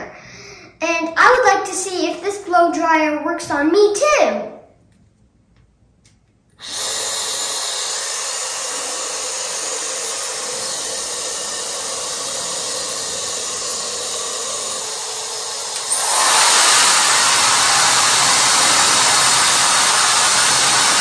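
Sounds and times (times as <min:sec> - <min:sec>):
hair dryer blowing air: 0:06.6 - 0:21.0.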